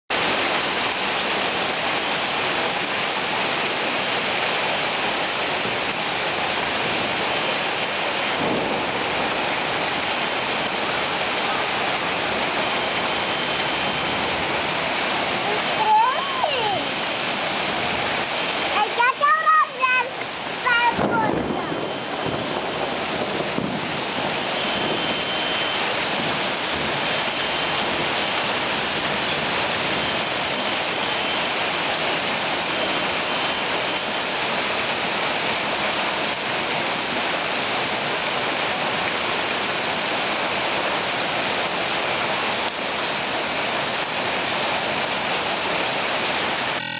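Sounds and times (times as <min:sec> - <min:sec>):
hail falling on rooftops: 0:00.2 - 0:13.2, 0:18.8 - 0:21.5, 0:22.2 - 0:25.0, 0:25.8 - 0:33.2.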